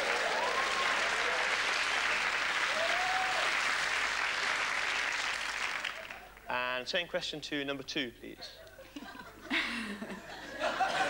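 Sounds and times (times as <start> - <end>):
studio audience applauding: 0.0 - 6.6.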